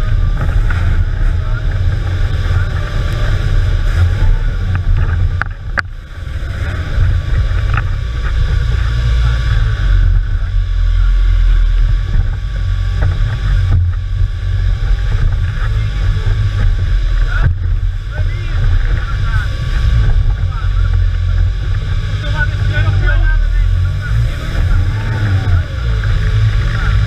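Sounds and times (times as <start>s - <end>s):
engine running hard: 0.0s - 27.0s.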